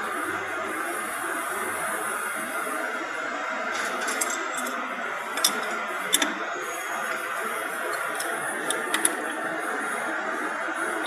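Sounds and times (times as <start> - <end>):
steady background hum: 0.0 - 11.0
spanners clinking on metal: 5.4 - 5.8.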